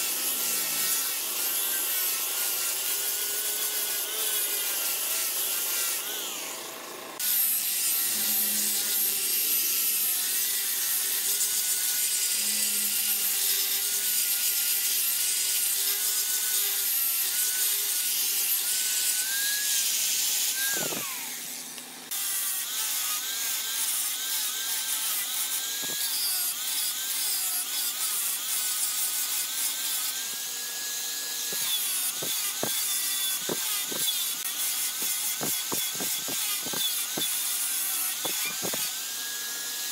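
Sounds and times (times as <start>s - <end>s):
angle grinder sanding wood: 0.0s - 39.9s.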